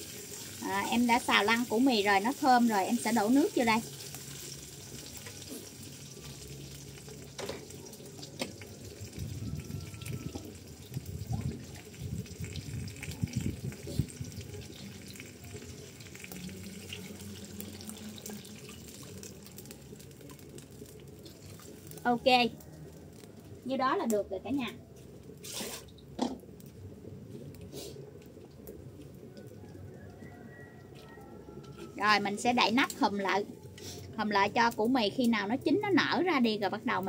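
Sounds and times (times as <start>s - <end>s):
water splashing into hot wok: 0.0s - 8.9s.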